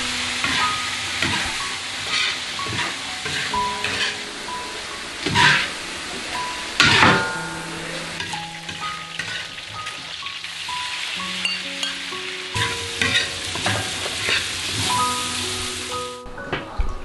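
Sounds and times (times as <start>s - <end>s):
food sizzling in hot oil: 0.0s - 16.2s
metal ladle scraping wok: 0.4s - 4.6s, 5.2s - 10.4s, 11.4s - 15.0s.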